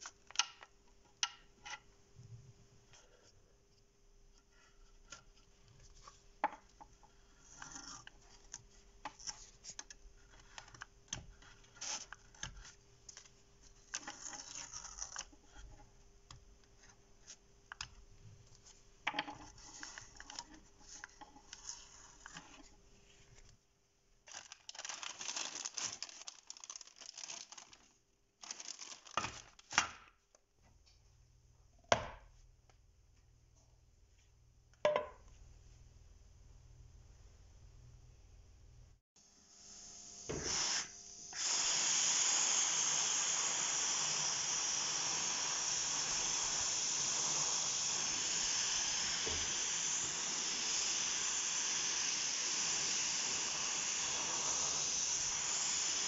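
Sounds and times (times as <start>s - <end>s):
masking tape rustling and tearing: 24.3s - 29.8s.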